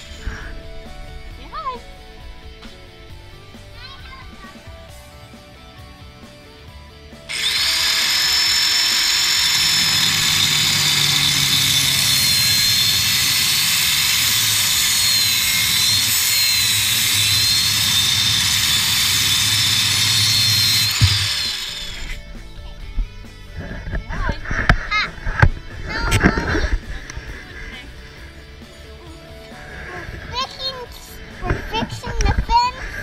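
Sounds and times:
angle grinder cutting steel: 7.3s - 22.3s.

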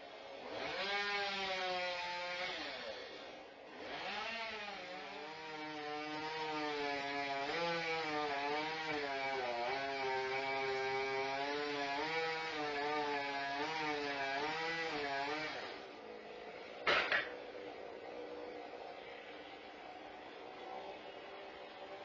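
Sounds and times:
chainsaw running at high revs: 0.0s - 16.6s.

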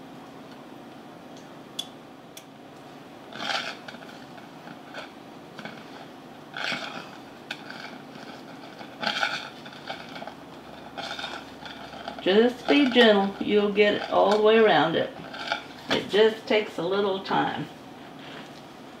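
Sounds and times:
knife scraping a metal cake pan: 15.1s - 15.9s.

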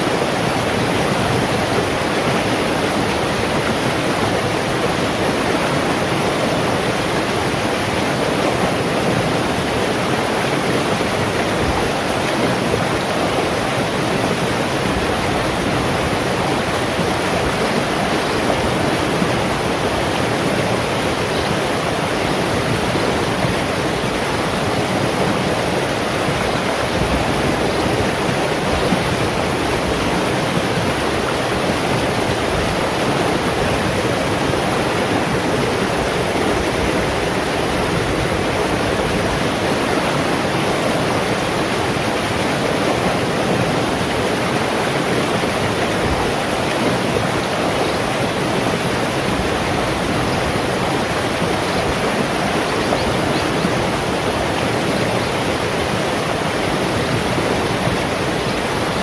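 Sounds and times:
stream rushing over stones: 0.0s - 59.0s.

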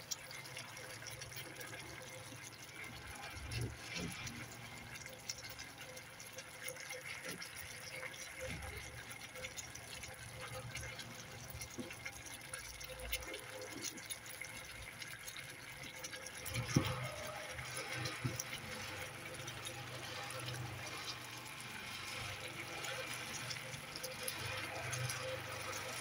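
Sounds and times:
sauce bubbling in a pan: 0.0s - 26.0s.

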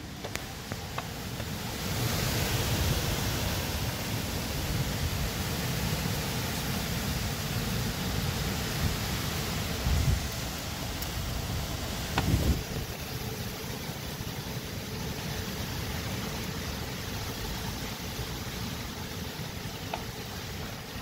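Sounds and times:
rain: 0.0s - 21.0s
wind gust buffeting microphone: 9.8s - 10.4s, 11.2s - 13.1s.

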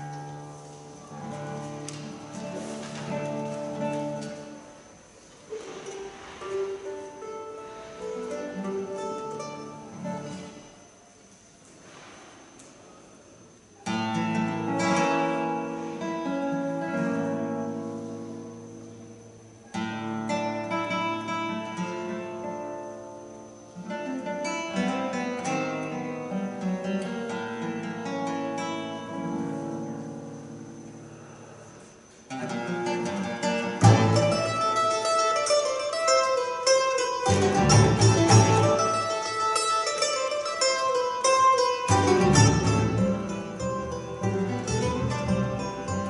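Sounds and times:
acoustic guitar chords: 0.0s - 11.1s, 13.8s - 46.0s
mandolin playing: 6.2s - 10.7s, 32.4s - 46.0s.

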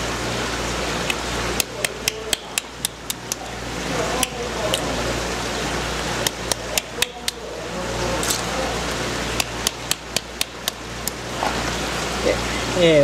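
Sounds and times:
hammer tapping shells on concrete: 1.6s - 3.4s, 6.2s - 7.4s, 9.4s - 10.8s.

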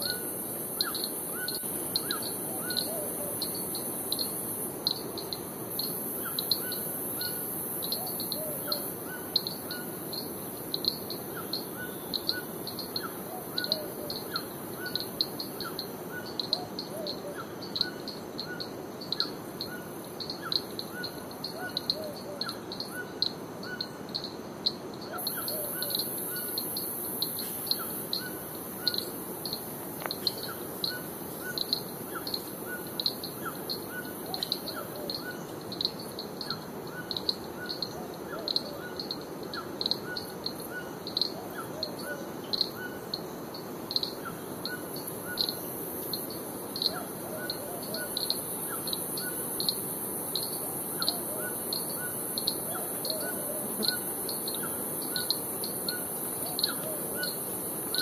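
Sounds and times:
background hiss: 0.0s - 58.0s
lower bird calls: 50.4s - 58.0s.

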